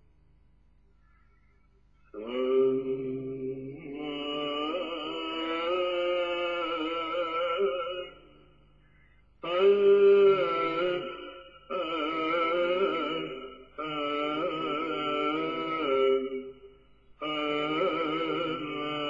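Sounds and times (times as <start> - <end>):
slow religious chant: 0.8 - 19.0.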